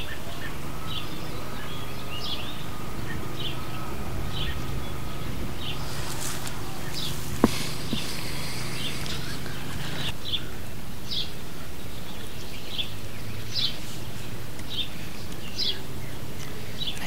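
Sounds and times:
bird chirping: 0.0 - 17.0
low steady hum: 0.0 - 17.0
outdoor background noise: 0.0 - 17.0.

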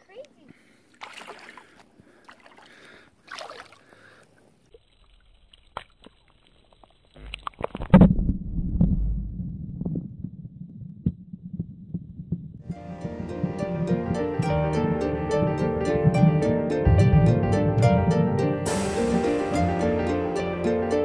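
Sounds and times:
underwater rumble and sloshing: 7.6 - 18.9.

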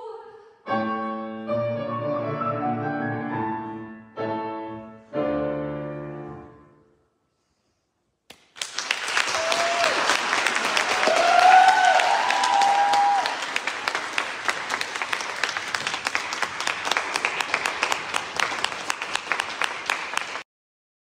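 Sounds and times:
audience applauding: 8.3 - 20.4
gliding cheers: 9.1 - 13.9.

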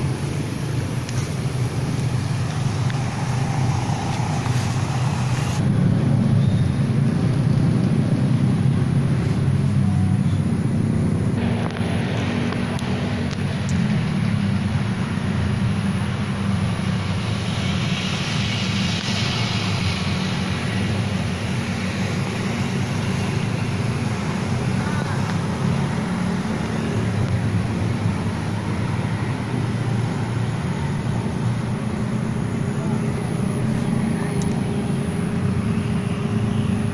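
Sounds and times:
higher hiss: 0.0 - 5.6, 11.4 - 29.0
road traffic rumble: 0.0 - 36.9.

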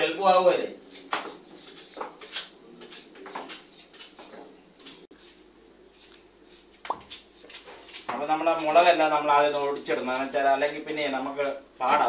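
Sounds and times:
knife scraping peel: 4.9 - 8.9.

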